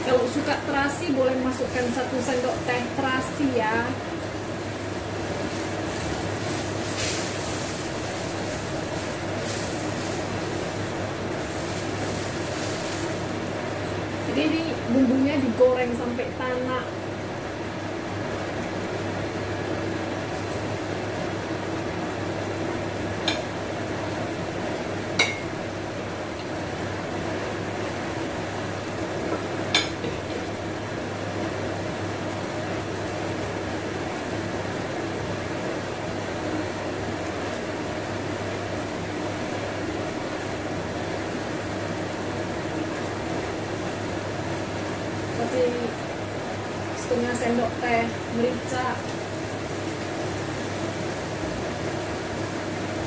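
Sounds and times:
paste sizzling in oil: 0.0s - 15.6s, 43.9s - 53.0s.

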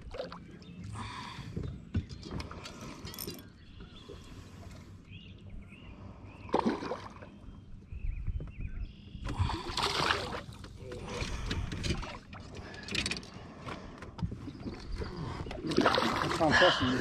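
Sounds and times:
water splashes: 6.5s - 7.3s, 9.3s - 12.5s, 15.0s - 17.0s.

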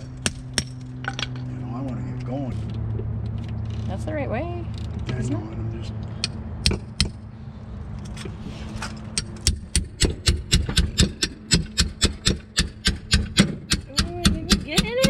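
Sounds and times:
hammer striking metal wrench: 9.2s - 14.6s.

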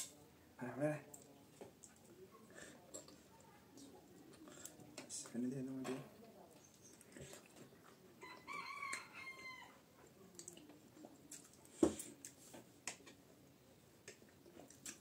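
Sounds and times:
rooster crowing: 8.2s - 9.8s.

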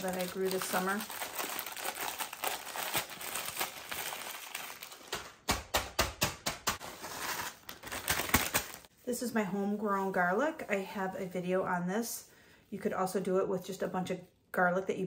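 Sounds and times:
plastic bag crinkling: 0.0s - 5.4s, 6.8s - 8.9s
frozen pieces crackling and knocking: 0.0s - 8.9s.

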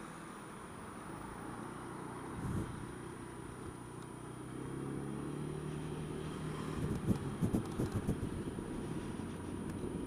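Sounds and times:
scooter engine running: 5.8s - 8.8s.

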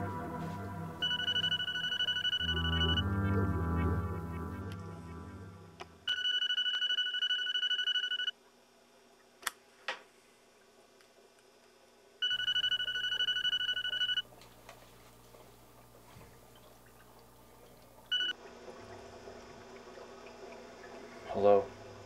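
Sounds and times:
mobile phone ringing: 1.0s - 3.1s, 6.1s - 8.3s, 12.2s - 14.3s, 18.1s - 18.4s.

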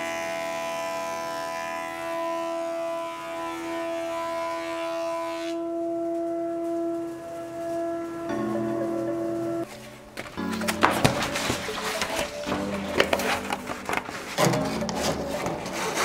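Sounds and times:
thickness planer whining: 0.0s - 5.7s.

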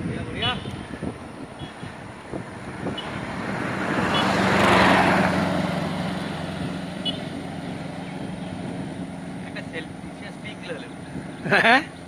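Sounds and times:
vehicle passing on wet road: 0.8s - 10.2s.

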